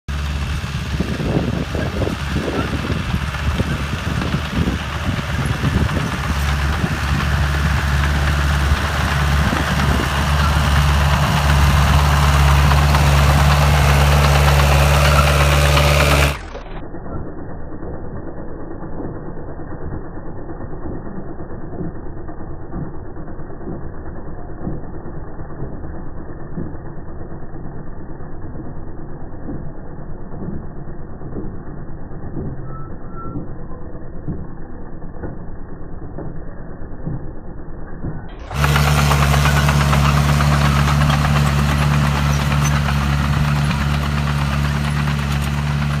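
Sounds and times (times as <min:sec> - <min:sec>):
tractor engine running: 0:00.0 - 0:46.0
weeder tool knocking: 0:00.9 - 0:16.8, 0:29.5 - 0:46.0.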